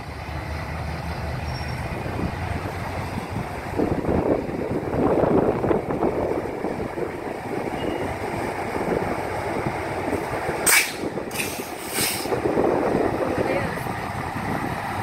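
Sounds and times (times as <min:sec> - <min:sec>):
diesel locomotive hauling train: 0:00.0 - 0:15.0
wagon wheels rumbling: 0:00.0 - 0:15.0
air hissing from locomotive: 0:10.7 - 0:12.4.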